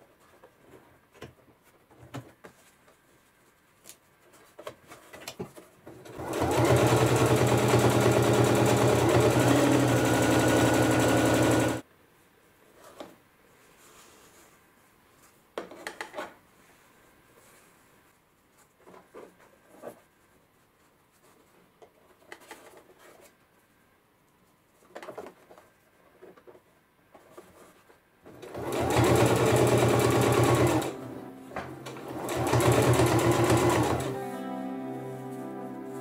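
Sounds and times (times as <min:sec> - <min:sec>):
sewing machine stitching: 0:06.1 - 0:11.8, 0:28.3 - 0:31.0, 0:31.8 - 0:34.2
guitar music: 0:30.9 - 0:32.2, 0:34.0 - 0:36.0.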